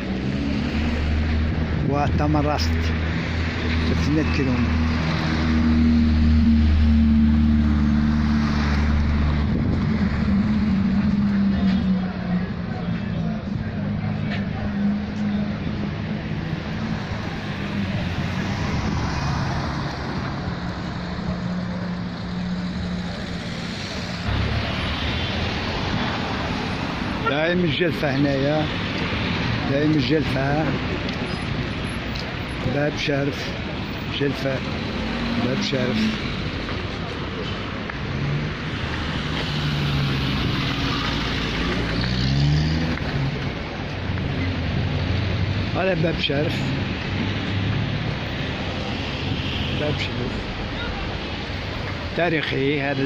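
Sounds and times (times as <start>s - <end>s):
car engines humming: 0.0s - 53.0s
road noise: 0.0s - 53.0s.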